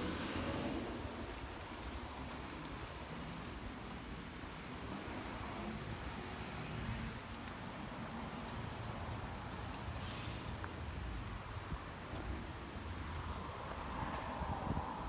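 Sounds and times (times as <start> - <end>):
insect chirping: 2.9 - 13.7.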